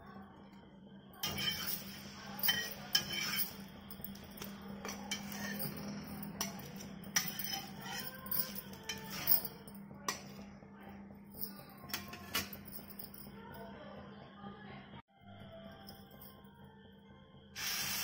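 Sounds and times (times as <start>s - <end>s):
spatula scraping cast iron pan: 1.2s - 3.7s, 4.8s - 8.2s.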